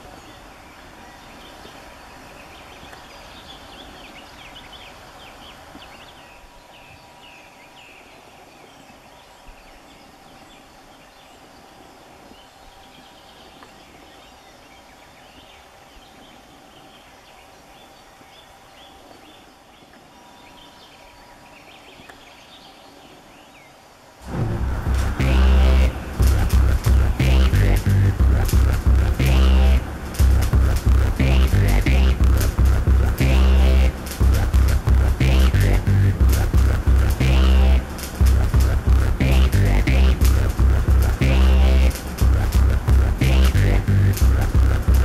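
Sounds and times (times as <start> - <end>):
small birds singing: 0.0 - 24.2
low wind rumble: 0.0 - 45.0
loud music: 24.3 - 45.0.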